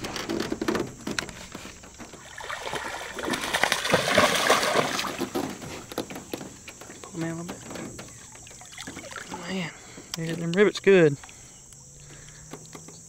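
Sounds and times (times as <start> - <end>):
fish splashing at water surface: 2.2 - 5.9.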